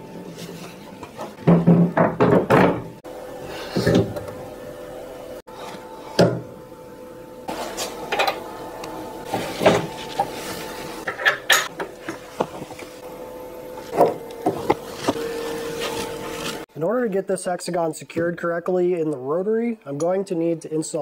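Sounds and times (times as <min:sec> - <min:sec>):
steady hum: 0:00.0 - 0:17.3
knocks and clicks of parts: 0:01.4 - 0:02.9.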